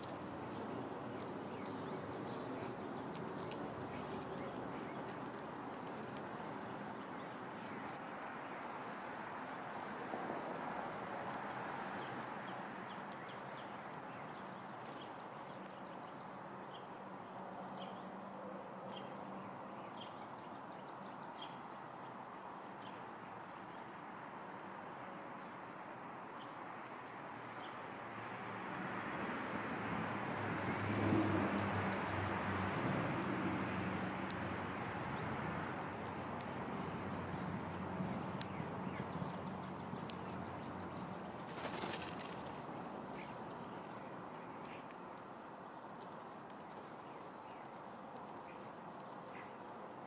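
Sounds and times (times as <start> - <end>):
distant traffic hum: 0.0 - 50.0
sharp ticks: 35.1 - 40.3.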